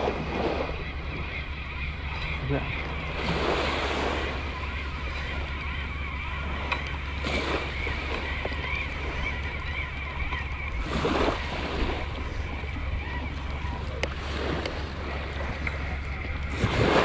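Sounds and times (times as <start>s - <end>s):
waves washing at the shore: 0.0s - 1.4s, 2.1s - 17.0s
wind rumble on microphone: 0.0s - 17.0s.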